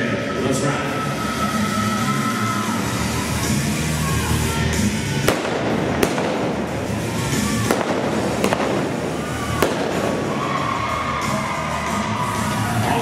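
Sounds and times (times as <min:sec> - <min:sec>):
revolver blank shots: 0:05.2 - 0:10.4.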